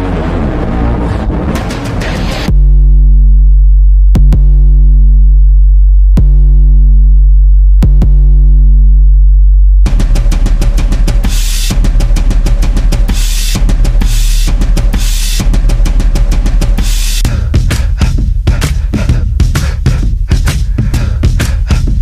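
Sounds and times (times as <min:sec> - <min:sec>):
sharp hits: 0:00.0 - 0:02.6, 0:09.9 - 0:17.2
deep bass note: 0:00.0 - 0:18.5
drum kit beat with cymbals: 0:09.9 - 0:22.0.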